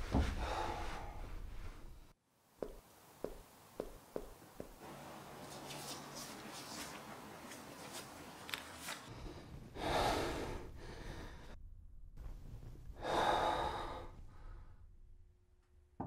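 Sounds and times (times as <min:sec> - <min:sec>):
man gasping breaths: 0:00.2 - 0:01.4, 0:09.1 - 0:11.6, 0:13.0 - 0:14.8.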